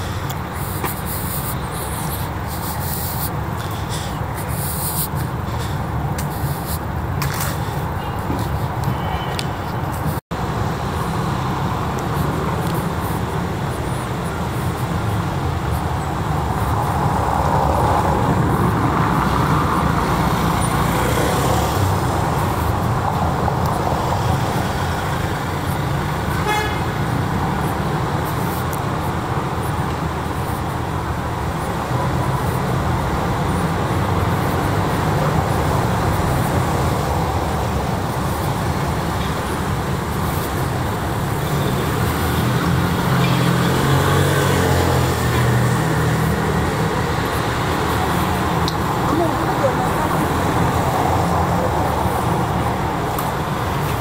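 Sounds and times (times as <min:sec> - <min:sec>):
traffic rumble: 0:00.0 - 0:54.0
car horn toot: 0:26.4 - 0:27.0.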